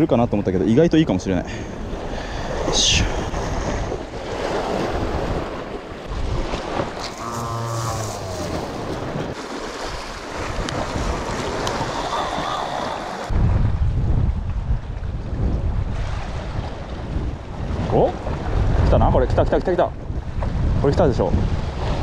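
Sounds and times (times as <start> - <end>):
sea surf on rocky shore: 1.4 - 13.7, 15.4 - 19.4
wind buffeting microphone: 1.4 - 22.0.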